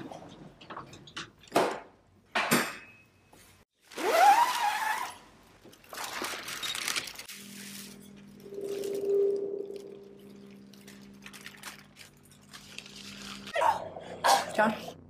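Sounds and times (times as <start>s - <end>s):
plastic sheeting crinkling: 3.8s - 13.6s
low steady drone: 8.3s - 12.1s.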